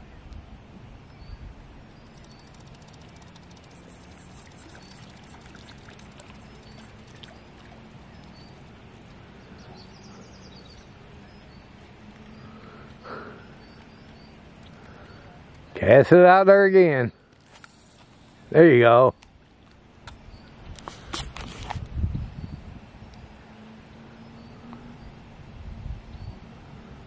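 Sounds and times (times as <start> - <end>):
faint background noise: 0.0 - 27.0
bird chirping: 1.1 - 15.8
fishing reel ticking: 2.0 - 7.2.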